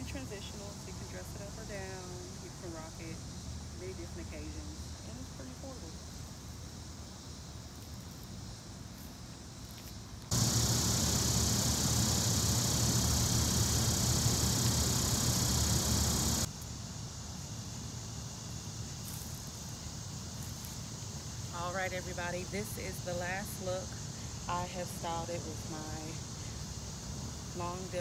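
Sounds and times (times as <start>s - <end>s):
faint outdoor background: 0.0s - 28.0s
loud steady hiss: 0.0s - 28.0s.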